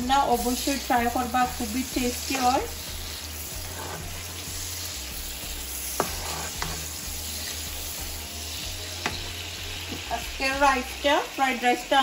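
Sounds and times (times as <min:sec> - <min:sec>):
vegetables sizzling in oil: 0:00.0 - 0:12.0
spatula stirring in pan: 0:00.1 - 0:10.2.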